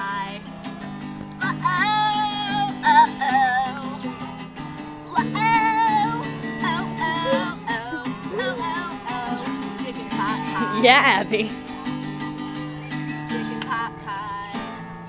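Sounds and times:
girl singing: 0.0s - 0.5s, 1.4s - 4.2s, 5.1s - 11.5s, 13.5s - 14.9s
acoustic guitar strumming: 0.0s - 15.0s.

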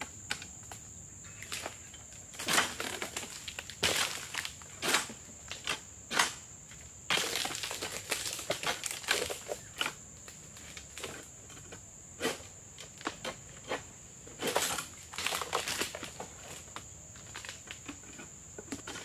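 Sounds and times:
dry palm fronds crackling: 1.3s - 6.3s, 7.1s - 11.2s, 14.5s - 17.9s.

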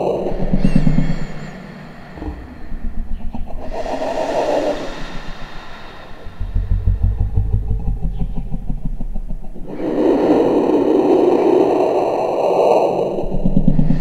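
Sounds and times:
faint steady high tones: 0.0s - 9.6s
low pulsing electronic rumble: 0.0s - 11.1s
dense noisy drone: 0.0s - 13.7s.

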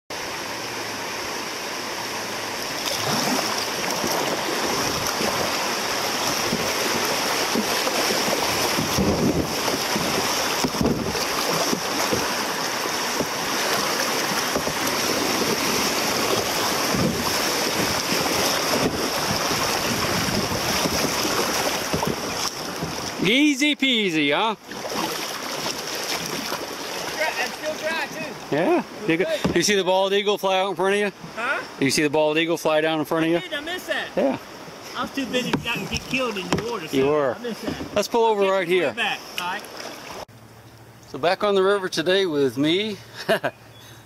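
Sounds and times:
river water rushing and splashing: 0.1s - 40.3s
wind on microphone: 3.0s - 12.6s, 13.2s - 23.2s
low thumps: 6.2s - 12.4s.

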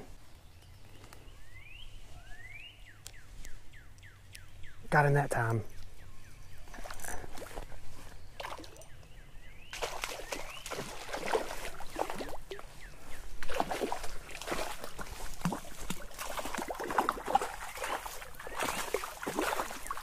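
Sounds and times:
fish splashing in water: 8.4s - 8.8s, 9.7s - 20.0s.

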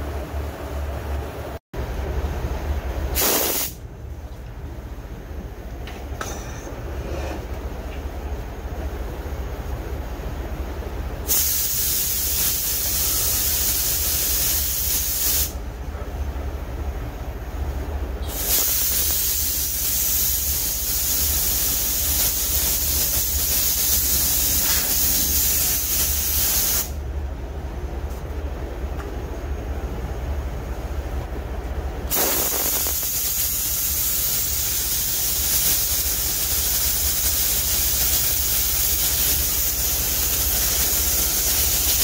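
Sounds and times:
steady low hum: 0.0s - 42.0s
paint spray gun hissing: 3.2s - 3.8s, 11.3s - 15.6s, 18.2s - 27.0s, 32.1s - 42.0s.

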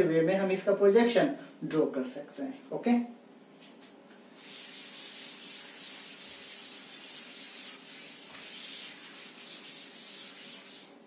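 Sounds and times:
eraser rubbing on chalkboard: 4.4s - 11.0s.

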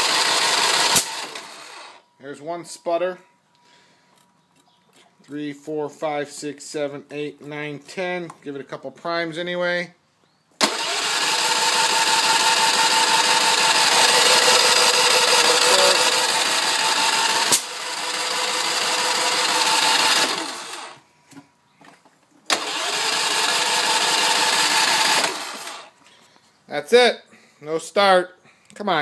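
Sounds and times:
generator starter cranking: 0.0s - 2.0s, 10.6s - 21.0s, 22.5s - 26.0s.

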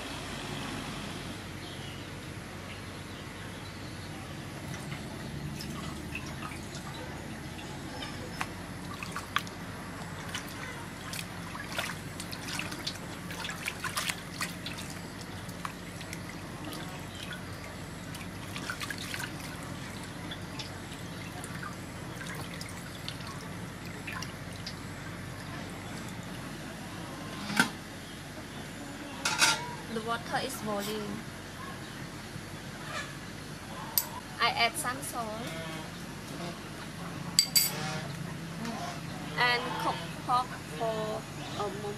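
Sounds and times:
water splashing in metal basin: 4.6s - 26.4s.

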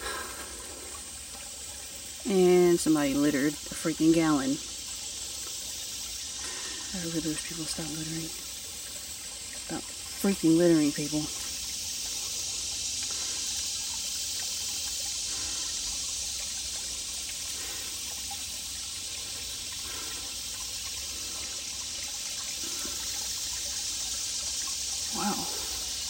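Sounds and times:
creek trickling over rocks: 0.0s - 26.0s.

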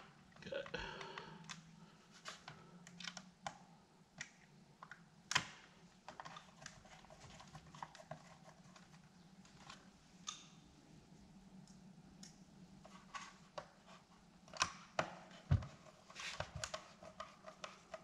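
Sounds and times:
plastic parts clicking and tapping: 0.6s - 10.6s, 12.2s - 18.0s.

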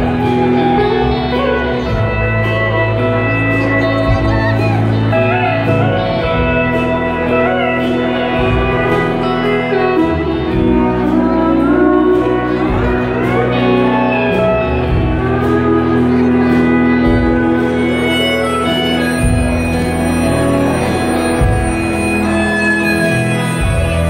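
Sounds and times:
live band playing: 0.0s - 24.0s
pedal steel guitar sliding notes: 0.0s - 24.0s.

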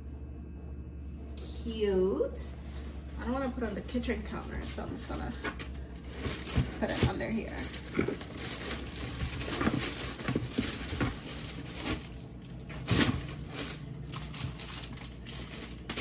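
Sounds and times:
tissue paper rustling: 2.7s - 16.0s.

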